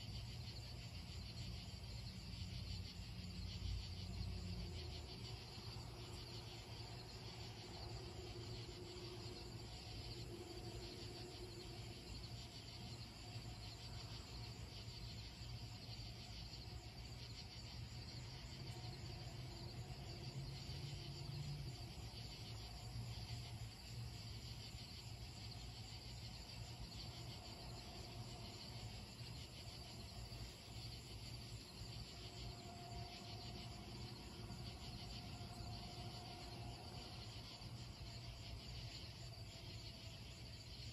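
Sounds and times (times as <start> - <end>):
crickets and insects trilling: 0.0 - 40.9.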